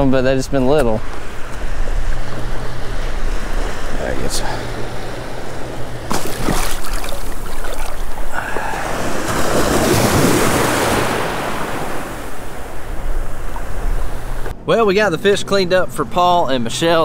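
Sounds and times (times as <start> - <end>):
small surf washing over sand: 6.1 - 14.5.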